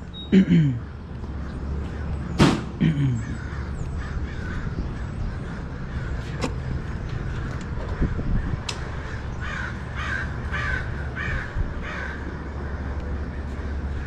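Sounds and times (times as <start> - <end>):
steady low rumble: 0.0 - 14.0
sharp knock: 2.4 - 2.7
crow-like caws: 2.8 - 14.0.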